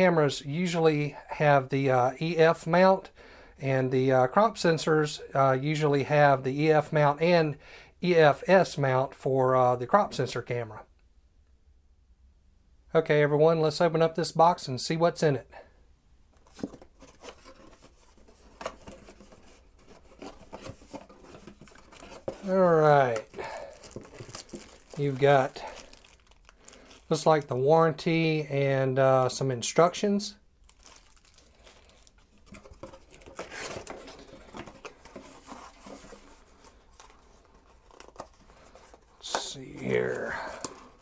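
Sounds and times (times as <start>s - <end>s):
cardboard rubbing and scraping: 16.5s - 22.7s, 32.5s - 39.2s.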